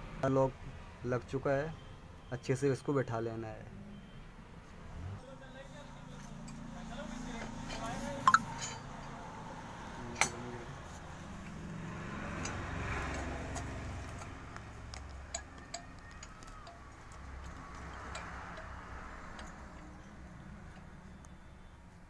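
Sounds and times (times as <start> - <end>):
light metallic ticks and clicks: 10.1 - 10.5, 12.3 - 21.4.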